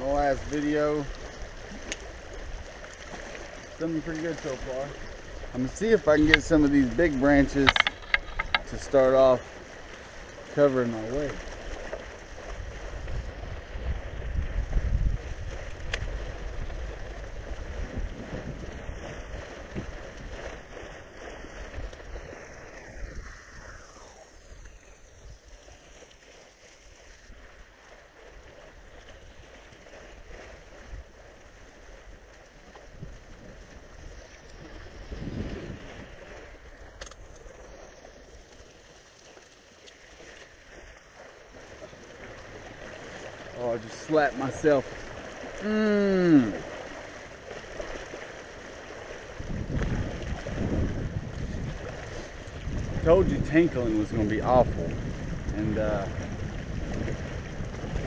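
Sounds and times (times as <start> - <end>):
wind buffeting microphone: 0.0 - 26.1, 28.5 - 38.1, 48.9 - 58.0
lake water lapping: 0.0 - 58.0.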